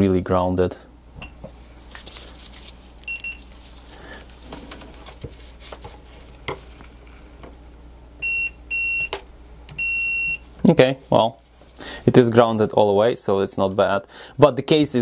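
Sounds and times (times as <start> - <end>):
multimeter beep: 3.1 - 3.4, 8.2 - 9.2, 9.8 - 10.4.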